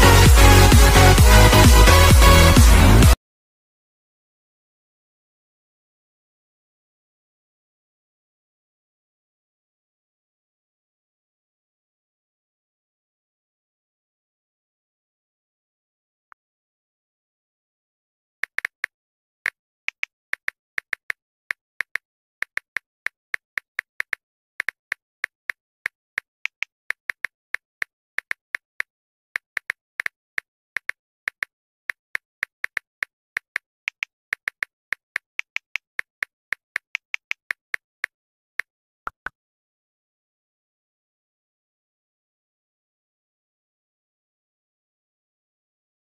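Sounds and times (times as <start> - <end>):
phone keyboard tap clicks: 19.9 - 21.2, 32.6 - 35.8.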